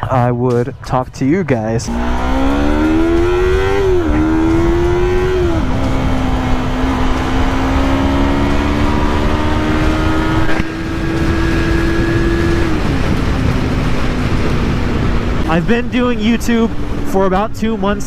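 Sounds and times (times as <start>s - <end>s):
wind rush: 1.6s - 18.0s
motorcycle engine under way: 1.8s - 18.0s.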